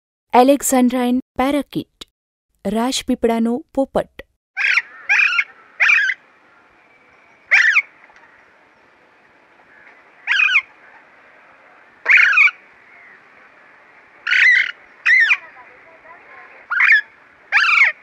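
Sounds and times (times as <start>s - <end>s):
parakeet calls: 4.6s - 6.2s, 7.3s - 8.4s, 9.7s - 11.1s, 12.0s - 18.0s
faint steady hiss: 5.5s - 17.6s.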